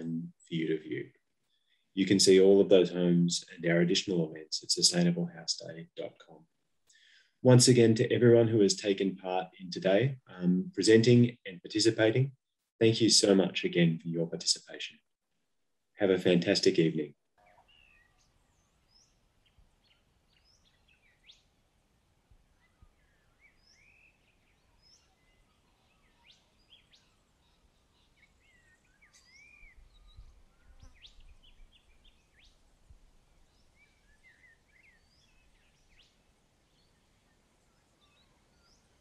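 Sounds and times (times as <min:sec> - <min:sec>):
birds chirping: 0:22.6 - 0:32.7.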